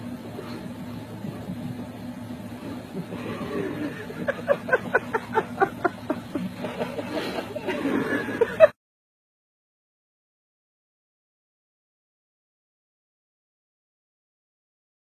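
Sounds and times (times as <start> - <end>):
low car hum: 0.0 - 8.8
person laughing: 3.1 - 8.8.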